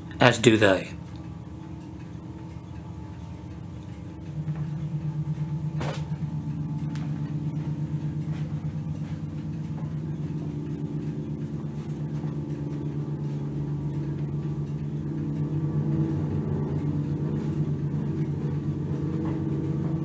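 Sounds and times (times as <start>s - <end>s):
low drone of held tones: 0.0s - 20.0s.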